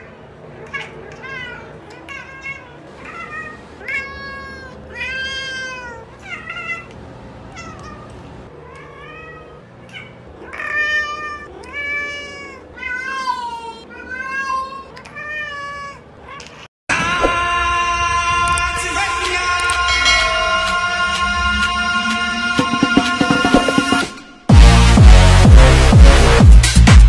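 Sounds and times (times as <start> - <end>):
cat meowing: 0.6 - 16.7.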